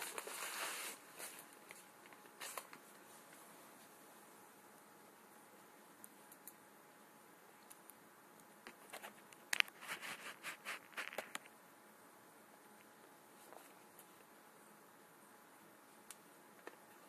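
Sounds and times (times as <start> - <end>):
cardboard rubbing and scraping: 0.0 - 1.4.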